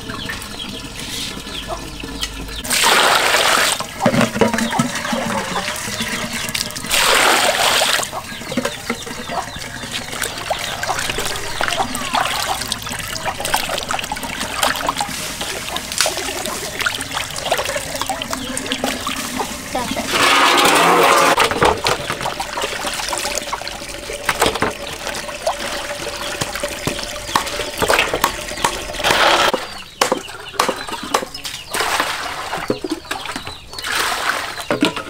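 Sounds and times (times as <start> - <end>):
water sloshing in metal basin: 0.0 - 35.0
loud water splashes: 2.7 - 4.0, 6.6 - 8.2.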